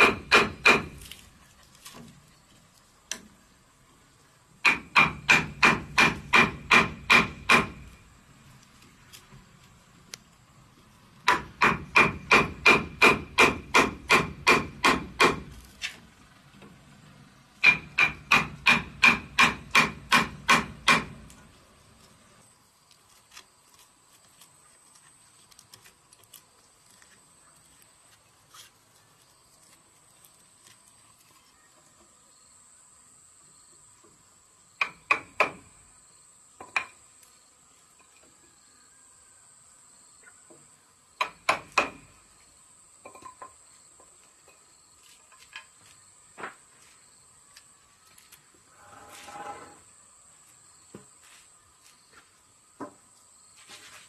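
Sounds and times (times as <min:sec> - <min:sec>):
mallet striking steel chisel: 0:00.0 - 0:00.9, 0:04.6 - 0:07.8, 0:11.3 - 0:15.4, 0:17.6 - 0:21.1
faint small clicks of wood chips: 0:22.8 - 0:32.0.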